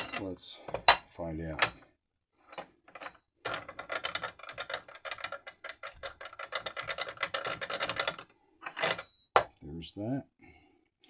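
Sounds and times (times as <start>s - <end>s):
small metal parts clicking: 2.9s - 9.1s.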